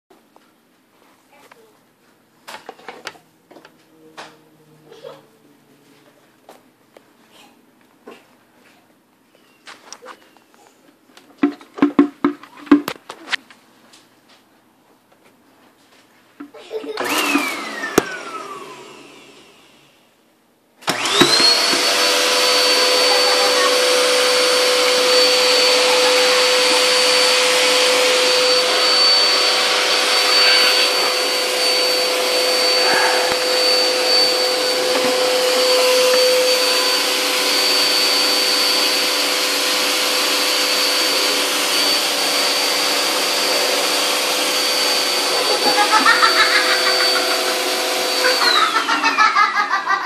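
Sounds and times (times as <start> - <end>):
vacuum cleaner motor: 16.7 - 20.0, 20.8 - 50.0.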